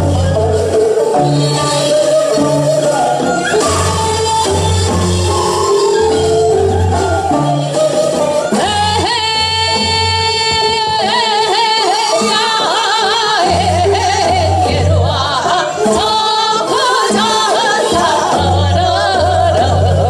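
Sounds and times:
amplified accompaniment with bass: 0:00.0 - 0:20.0
women singing folk song: 0:06.9 - 0:20.0.

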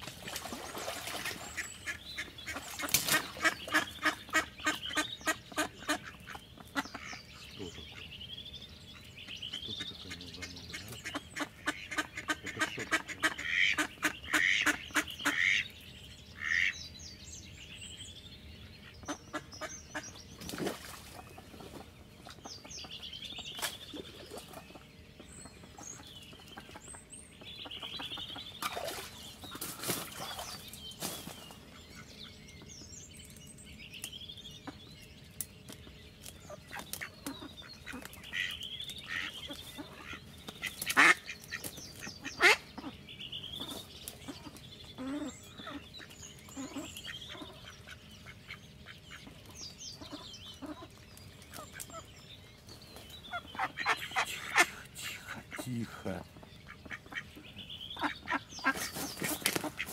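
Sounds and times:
small birds chirping: 0:00.0 - 0:59.9
duck quacking: 0:09.6 - 0:15.6, 0:40.8 - 0:41.4, 0:42.2 - 0:42.9, 0:53.3 - 0:56.0.

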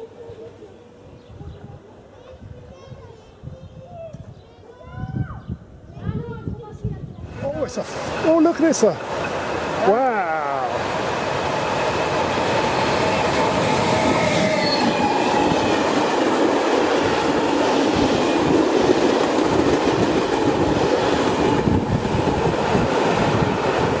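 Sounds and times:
freight train passing: 0:07.2 - 0:24.0.

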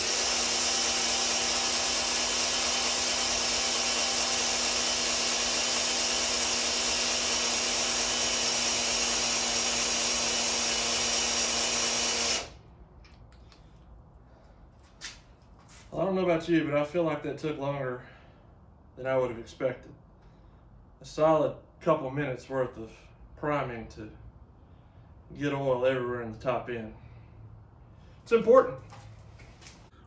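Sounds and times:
cordless drill running: 0:00.0 - 0:12.6.

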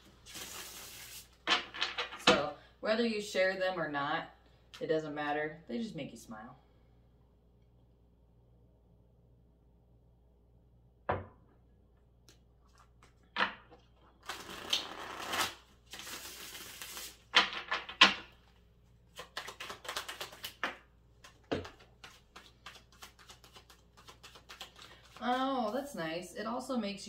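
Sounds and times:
knocks on wooden table: 0:11.1 - 0:11.4
cards being shuffled: 0:14.2 - 0:18.0, 0:19.1 - 0:25.8.

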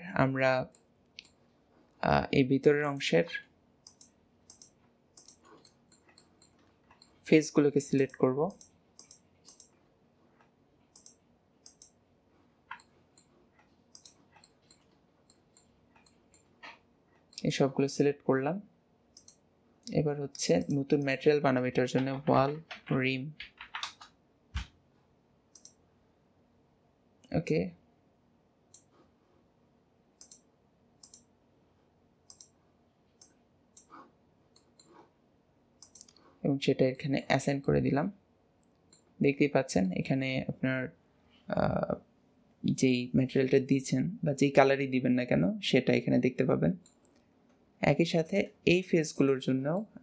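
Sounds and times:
mouse and keyboard clicks: 0:03.8 - 0:07.2, 0:07.9 - 0:09.8, 0:10.4 - 0:12.0, 0:12.6 - 0:17.5, 0:19.2 - 0:19.4, 0:20.6 - 0:21.2, 0:21.9 - 0:24.7, 0:25.5 - 0:25.8, 0:30.2 - 0:31.3, 0:32.3 - 0:32.6, 0:33.2 - 0:35.1, 0:35.8 - 0:36.3.

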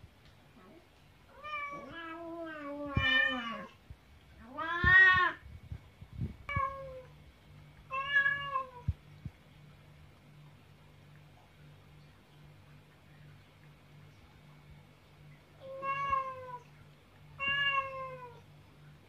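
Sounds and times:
cats meowing: 0:01.3 - 0:03.8, 0:04.4 - 0:05.4, 0:15.6 - 0:16.7, 0:17.4 - 0:18.4.

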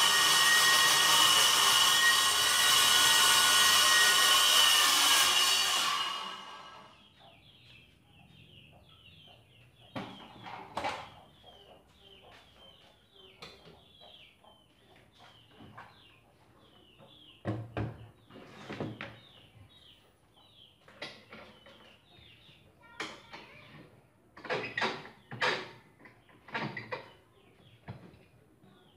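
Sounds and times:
circular saw spinning down: 0:00.0 - 0:06.9
knocks and clunks of tools: 0:09.9 - 0:11.2.

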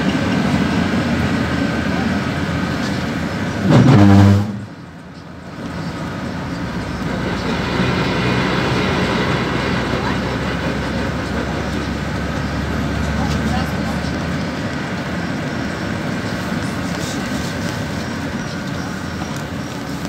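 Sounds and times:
bus engine and road noise: 0:00.0 - 0:20.0
loud pitched sound: 0:03.6 - 0:04.7.

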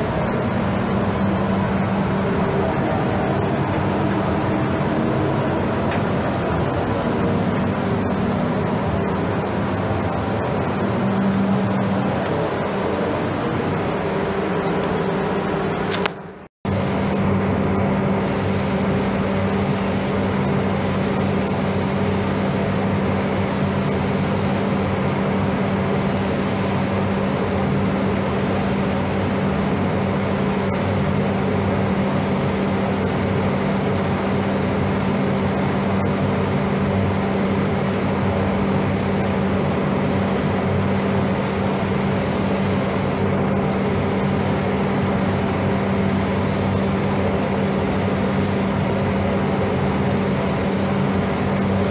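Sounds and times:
ventilation fans rushing air: 0:00.0 - 0:51.9
spray gun hissing: 0:07.1 - 0:12.8, 0:16.7 - 0:51.9.

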